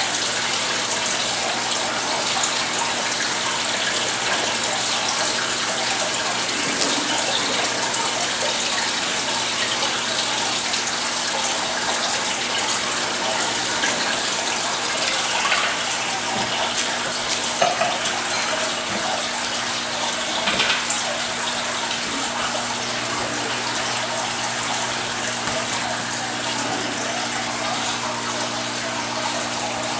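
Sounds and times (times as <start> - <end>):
water rushing and splashing: 0.0 - 29.9.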